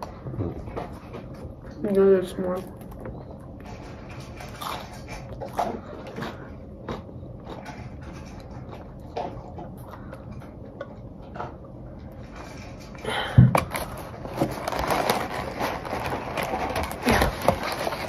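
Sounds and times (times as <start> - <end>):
paper rustling in cardboard box: 13.7 - 18.0.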